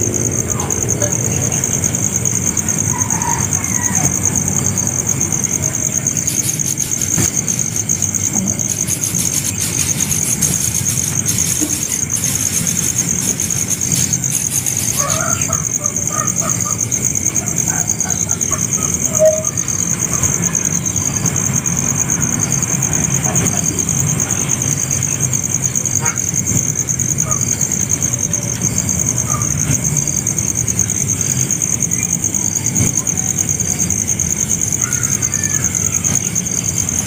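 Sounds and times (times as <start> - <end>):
insect drone: 0.0 - 37.0
chicks squeaky calls: 5.6 - 21.0.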